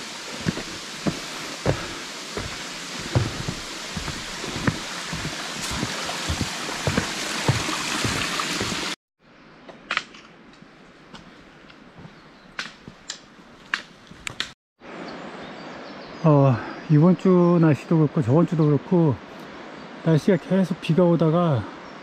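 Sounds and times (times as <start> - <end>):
footsteps on a trail: 0.0 - 9.0, 11.1 - 14.4
mountain stream rushing: 0.0 - 9.0.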